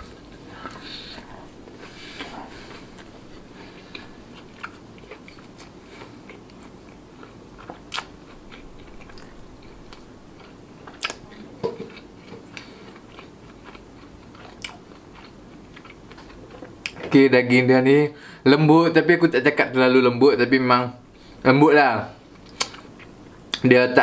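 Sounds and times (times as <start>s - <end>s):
chewing meat: 0.0s - 17.1s, 22.3s - 23.6s
wet mouth clicks: 22.5s - 22.9s.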